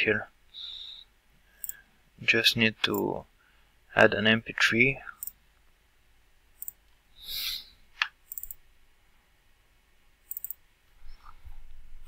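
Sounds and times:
computer mouse clicking: 1.6 - 1.8, 6.6 - 6.8, 8.0 - 8.6, 10.3 - 10.6
short hiss: 7.2 - 7.8.

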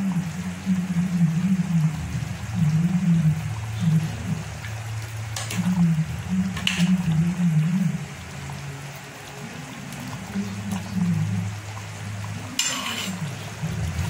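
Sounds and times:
low wavering hum: 0.0 - 14.0
ladle scraping pot: 12.5 - 13.6
ladle stirring stew in a pot: 12.6 - 14.0.

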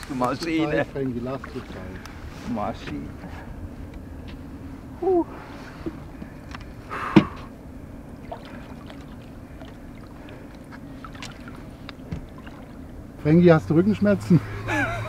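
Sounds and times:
water splashing and lapping: 0.0 - 2.7, 7.2 - 13.2
steady low hum: 0.0 - 15.0.

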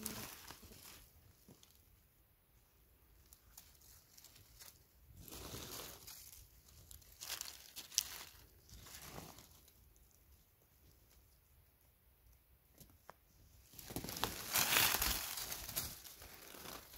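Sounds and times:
dry leaves rustling and crackling: 3.5 - 9.7, 13.8 - 16.9.

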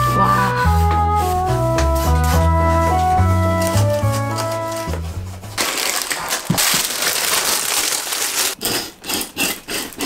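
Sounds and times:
plastic film crinkling and tearing: 3.2 - 8.6.

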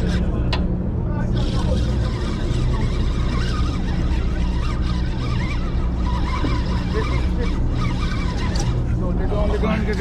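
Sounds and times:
boat engines droning: 0.0 - 10.0
short high-pitched wavering calls: 2.1 - 8.8.

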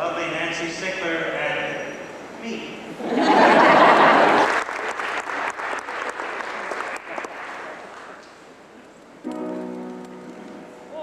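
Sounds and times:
audience applauding: 3.8 - 8.3.

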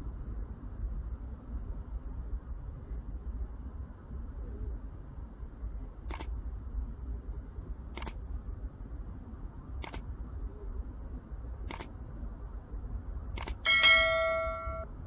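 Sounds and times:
low background rumble: 0.0 - 15.0
mouse double clicks: 6.1 - 6.3, 8.0 - 8.2, 9.8 - 10.0, 11.7 - 11.9, 13.4 - 13.6.

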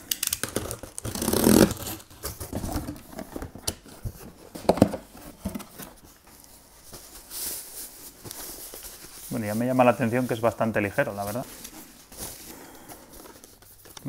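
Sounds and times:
box cutter slitting tape: 0.0 - 2.4
cardboard flaps clicking and rustling: 0.4 - 6.2.

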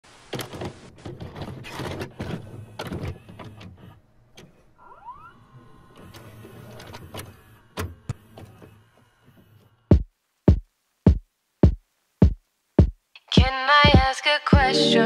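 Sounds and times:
tape mechanism clunks and clicks: 0.3 - 9.4
mechanism whine: 2.1 - 9.9.

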